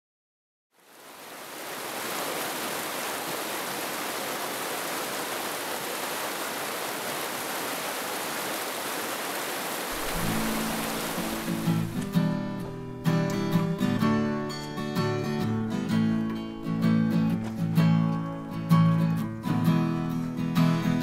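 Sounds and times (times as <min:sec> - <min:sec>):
rushing mountain creek: 0:00.8 - 0:12.8
music: 0:10.1 - 0:21.0.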